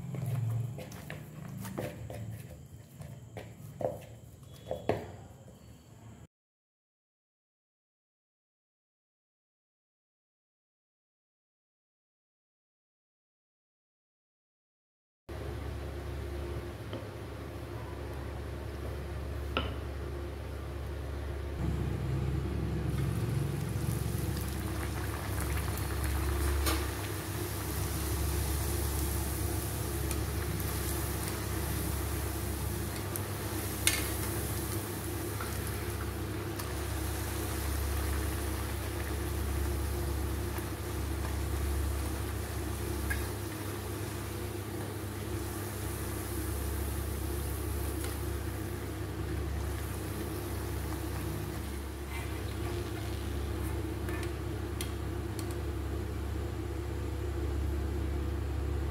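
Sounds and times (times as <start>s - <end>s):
oil sizzling and bubbling: 18.4s - 58.3s
low hum: 21.0s - 58.1s.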